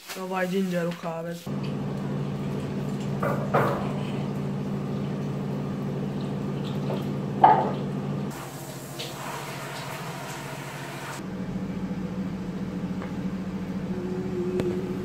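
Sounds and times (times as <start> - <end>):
steady low hum: 1.4 - 8.4, 11.2 - 15.0.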